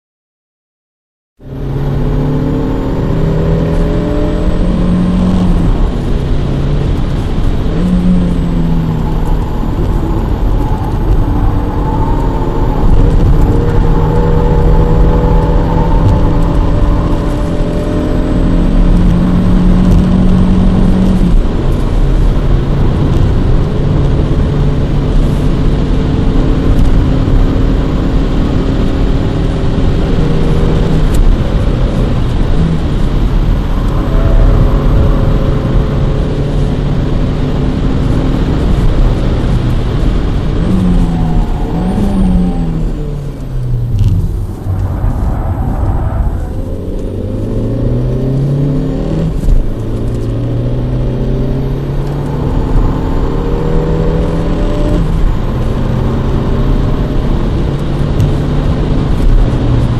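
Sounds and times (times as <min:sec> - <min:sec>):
car engine revving through gears: 0:01.4 - 0:59.9
road and tyre rumble: 0:01.4 - 0:59.9.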